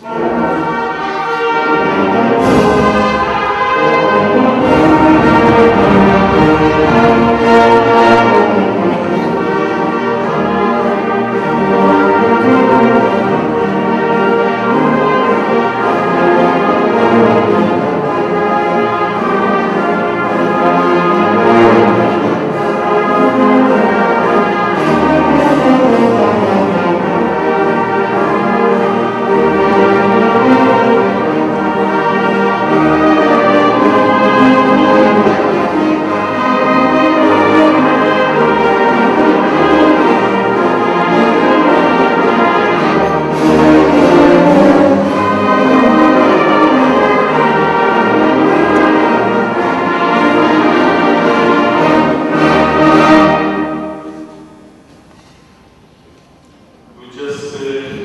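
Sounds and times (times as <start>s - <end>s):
brass band playing held chords: 0.0s - 58.0s.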